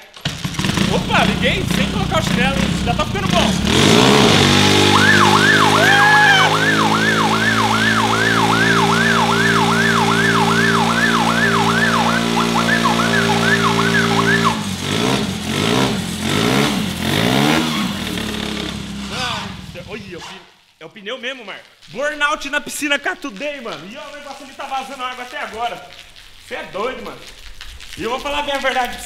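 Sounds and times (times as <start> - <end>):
engine running at high revs: 0.3 - 19.8
siren yelping: 4.0 - 14.8.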